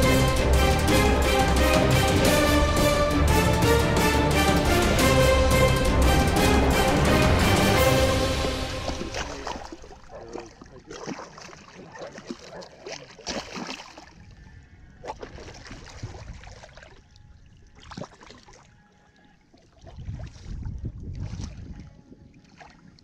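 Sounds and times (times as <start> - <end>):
water splashing: 6.2 - 14.2, 15.0 - 18.7, 19.4 - 23.0.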